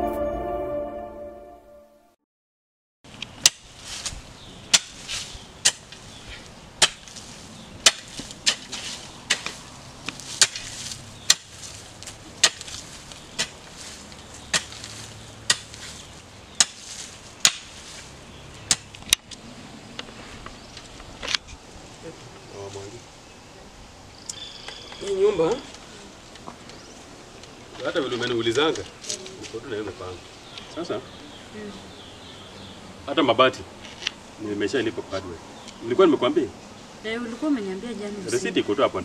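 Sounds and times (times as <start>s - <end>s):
hand hoe chopping into soil: 3.4s - 19.0s.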